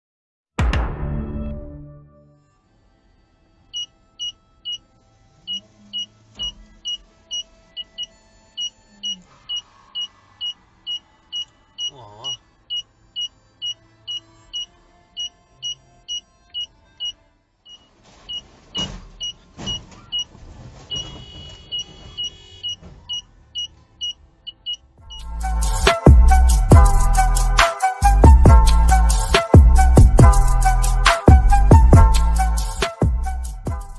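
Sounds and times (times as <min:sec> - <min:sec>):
electronic warning beeps: 0:03.8 - 0:04.8, 0:05.5 - 0:20.3, 0:20.9 - 0:25.3
car crashing into parked cars: 0:18.0 - 0:23.2.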